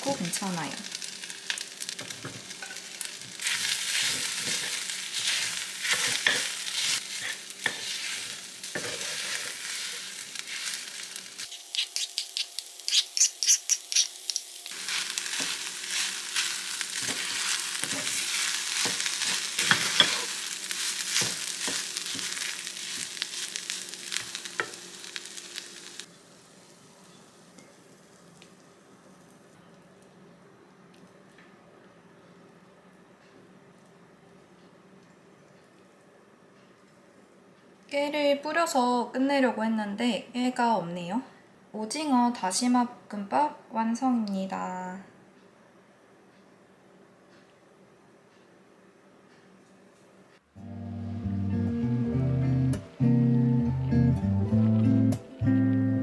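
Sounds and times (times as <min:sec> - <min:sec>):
rice sizzling in a pan: 0:00.0 - 0:29.4
wooden spatula scraping a pan: 0:03.4 - 0:10.8, 0:14.8 - 0:23.2.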